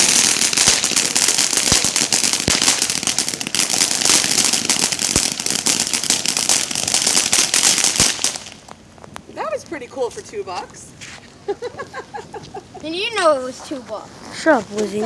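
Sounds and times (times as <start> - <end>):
firework pops: 0.0 - 9.3
firework fountain hissing and crackling: 0.0 - 15.0.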